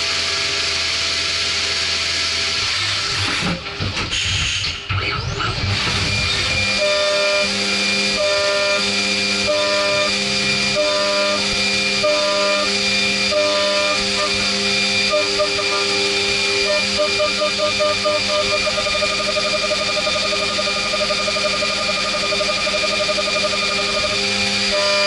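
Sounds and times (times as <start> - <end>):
high spindle whine: 0.0 - 25.0
milling cutting tone: 13.3 - 25.0.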